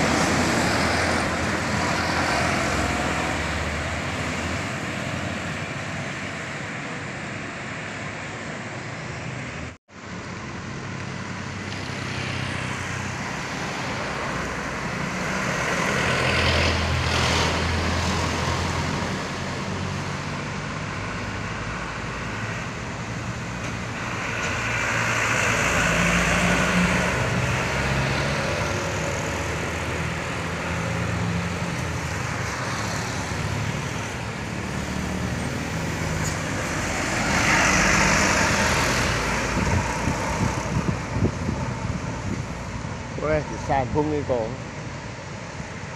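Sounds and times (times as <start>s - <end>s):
vehicles passing on road: 0.0s - 45.9s
box truck passing close: 11.4s - 44.0s.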